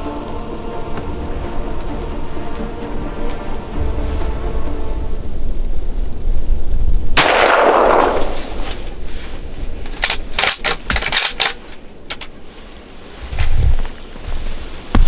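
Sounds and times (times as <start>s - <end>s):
rifle shot with echo: 7.2s - 8.8s.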